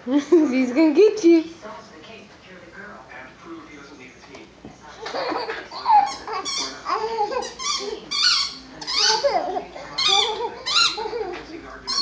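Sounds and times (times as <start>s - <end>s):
dog whining and yipping: 10.0s - 11.3s.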